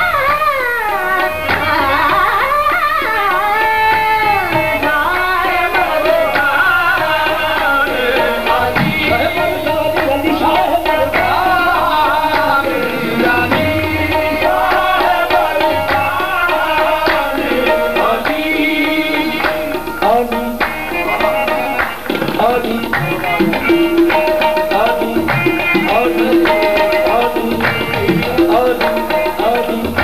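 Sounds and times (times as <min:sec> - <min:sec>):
harmonium melody: 0:00.0 - 0:30.0
tabla drumming: 0:00.0 - 0:30.0
people singing: 0:01.2 - 0:30.0.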